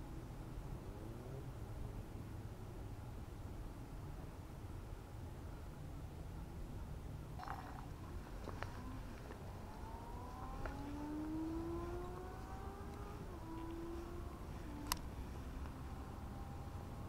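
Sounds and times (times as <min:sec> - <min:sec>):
vehicle engine accelerating: 0:07.7 - 0:17.0.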